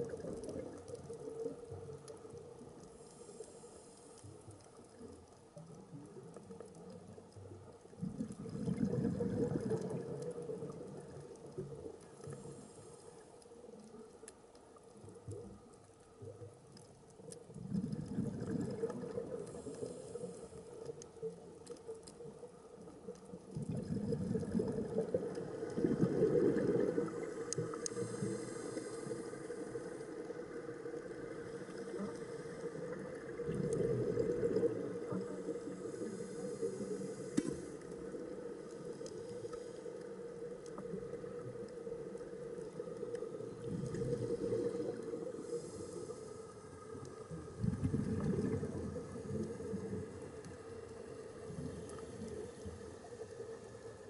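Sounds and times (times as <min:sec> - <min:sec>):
diver exhaling bubbles: 0:08.1 - 0:10.2, 0:17.6 - 0:19.5, 0:23.5 - 0:27.3, 0:47.5 - 0:49.9.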